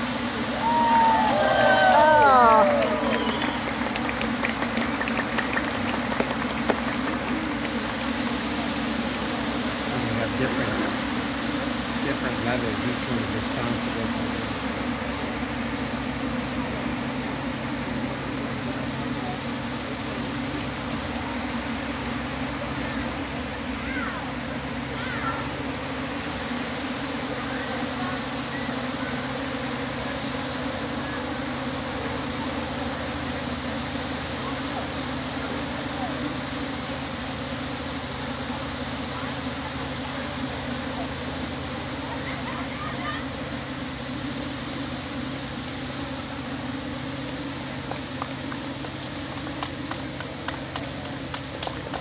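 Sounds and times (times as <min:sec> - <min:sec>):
drones buzzing overhead: 0:00.0 - 0:52.0
hand clapping: 0:02.2 - 0:09.3, 0:47.8 - 0:52.0.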